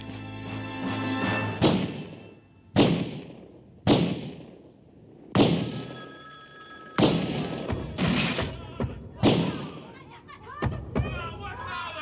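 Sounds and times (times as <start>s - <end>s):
telephone bell ringing: 5.7s - 8.0s, 11.6s - 12.0s.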